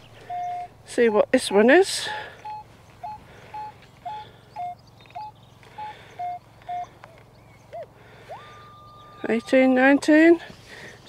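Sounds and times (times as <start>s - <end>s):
metal detector beeping: 0.0s - 1.3s, 2.0s - 9.6s.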